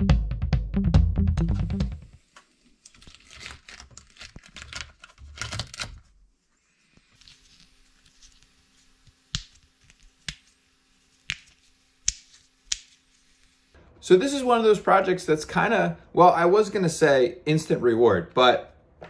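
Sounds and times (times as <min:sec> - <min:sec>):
plastic print peeling off crackling: 0:02.6 - 0:06.2, 0:07.0 - 0:13.6.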